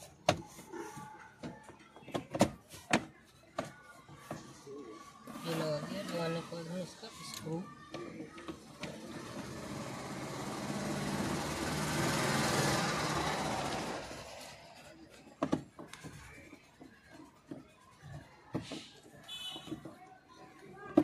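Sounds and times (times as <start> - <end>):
motor vehicle passing: 8.8 - 15.0.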